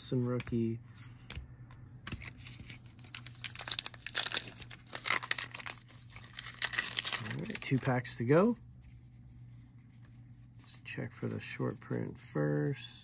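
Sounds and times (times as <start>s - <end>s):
wrapper tearing and crinkling: 2.9s - 7.9s.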